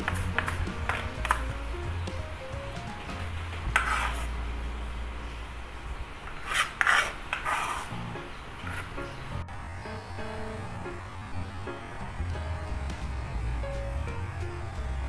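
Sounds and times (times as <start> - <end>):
cleaver scraping cutting board: 0.0 - 1.4, 3.7 - 4.3, 6.2 - 9.2.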